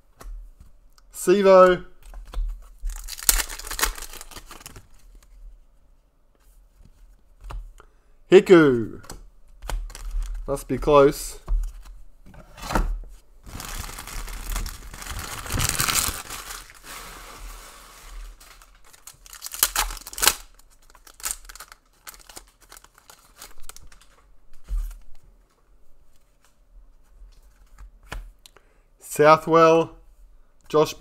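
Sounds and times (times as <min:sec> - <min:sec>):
wrapper tearing and crinkling: 0:02.9 - 0:05.0, 0:09.9 - 0:10.4, 0:13.4 - 0:24.1.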